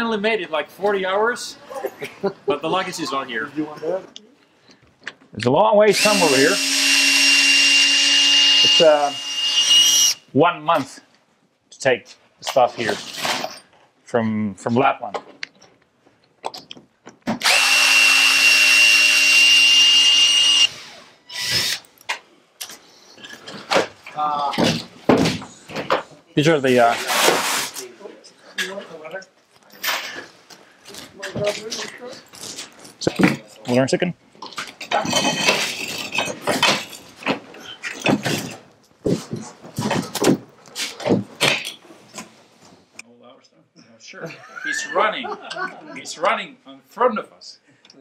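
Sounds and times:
cordless drill whining: 0:05.9 - 0:10.2, 0:17.4 - 0:21.8.

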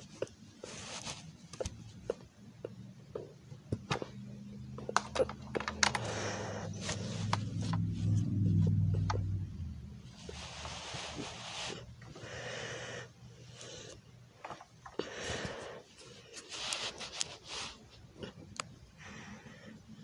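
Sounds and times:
low steady hum: 0:00.0 - 0:20.0
plastic toys clicking and knocking: 0:04.8 - 0:06.2.

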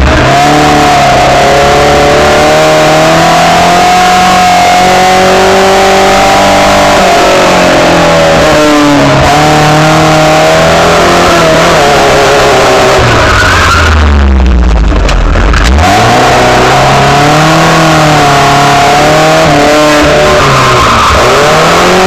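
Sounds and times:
car engine under load: 0:00.0 - 0:22.0
deep rumble: 0:12.9 - 0:18.0.

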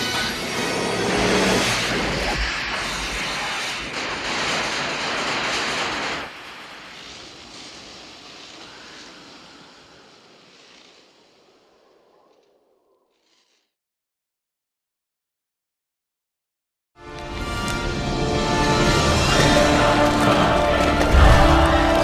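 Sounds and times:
rushing hissing roar: 0:00.0 - 0:04.3, 0:06.4 - 0:12.2, 0:18.4 - 0:22.0.

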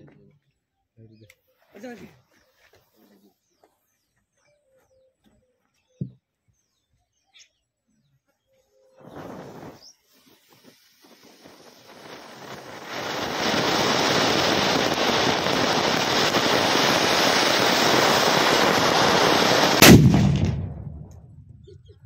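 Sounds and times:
firework fountain hissing: 0:09.0 - 0:20.8
firecracker bang: 0:11.0 - 0:21.6.

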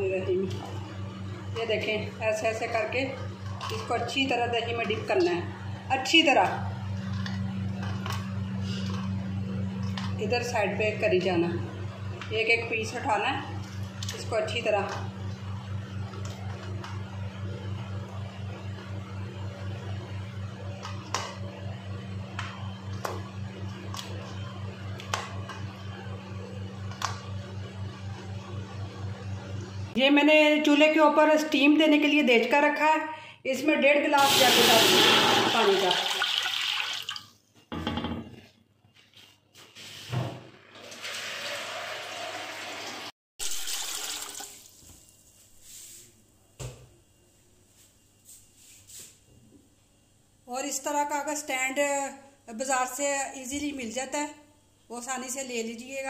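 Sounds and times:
water pouring into metal pot: 0:34.2 - 0:37.2, 0:40.9 - 0:44.8.

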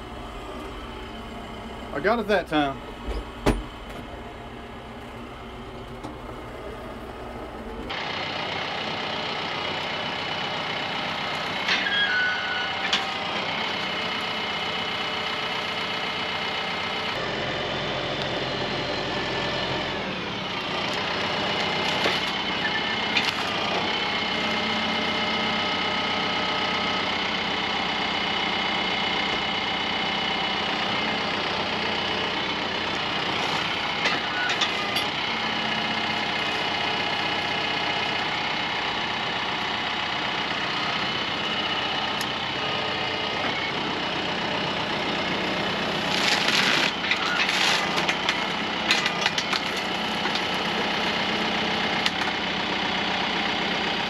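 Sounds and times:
tractor diesel engine running: 0:00.0 - 0:54.0
grapple and logs clunking: 0:20.9 - 0:25.0, 0:30.9 - 0:38.2, 0:45.1 - 0:52.4.

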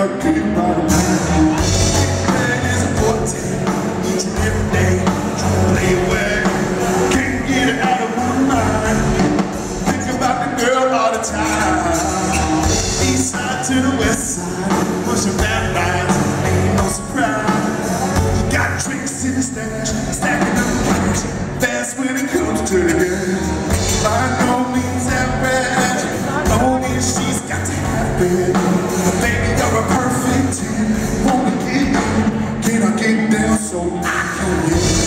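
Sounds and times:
country-rock band playing: 0:00.0 - 0:35.0
man singing: 0:00.0 - 0:35.0.

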